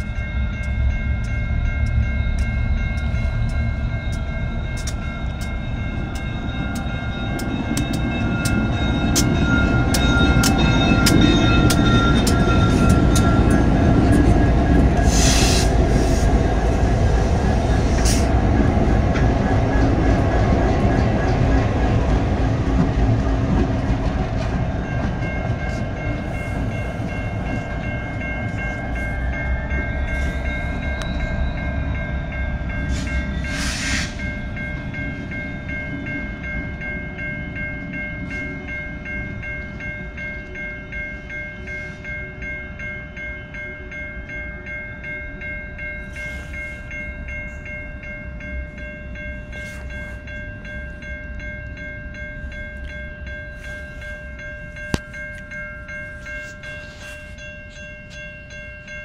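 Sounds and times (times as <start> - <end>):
crossing warning bells ringing: 0.0 - 59.0
diesel locomotives rumbling: 0.0 - 59.0.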